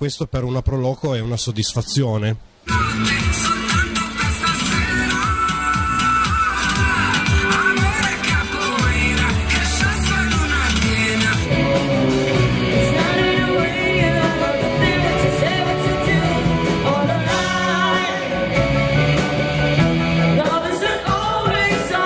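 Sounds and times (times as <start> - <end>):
woman singing lead: 2.7 - 11.8, 12.7 - 18.8, 20.3 - 22.0
dance track with steady beat: 2.7 - 22.0
live rock band playing: 2.7 - 22.0.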